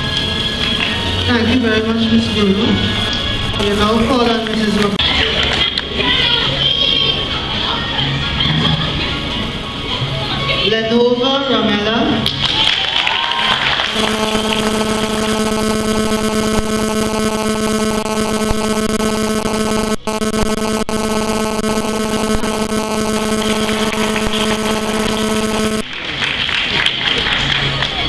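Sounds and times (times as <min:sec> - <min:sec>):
loud electrical buzz: 0:00.0 - 0:05.0, 0:13.8 - 0:25.9.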